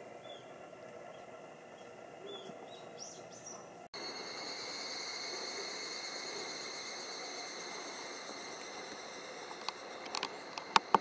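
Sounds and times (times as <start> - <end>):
songbirds chirping: 0.0 - 11.0
cicada chorus drone: 4.0 - 11.0.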